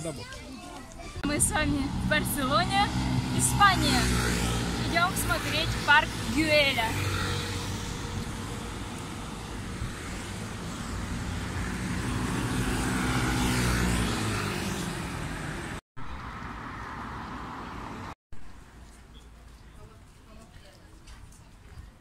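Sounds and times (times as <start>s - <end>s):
street traffic noise: 0.0s - 22.0s
vehicle engine passing close: 1.2s - 18.2s.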